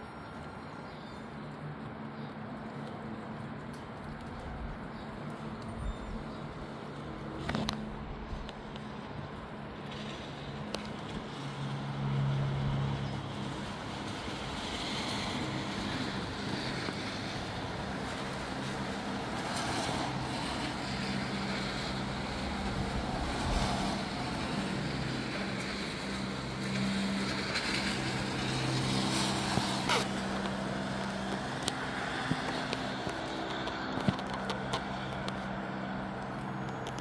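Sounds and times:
light rain: 0:01.5 - 0:37.0.

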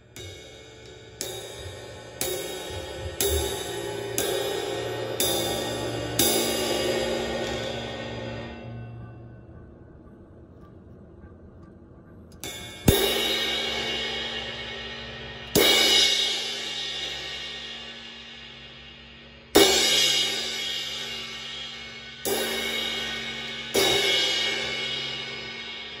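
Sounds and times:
crash cymbal struck with drumstick: 0:12.4 - 0:26.0.

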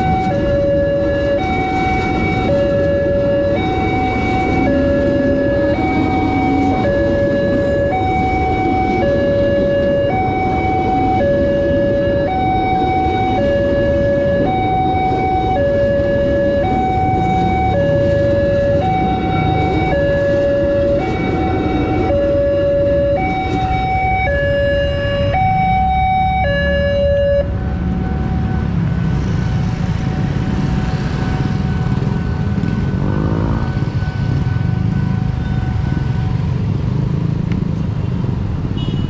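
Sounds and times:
level-crossing alarm two-tone signal: 0:14.4 - 0:27.5.

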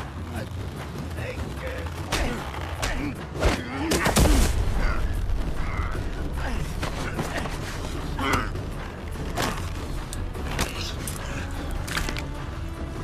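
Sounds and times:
leather jackets creaking: 0:00.0 - 0:03.2
men grunting: 0:02.1 - 0:09.6.

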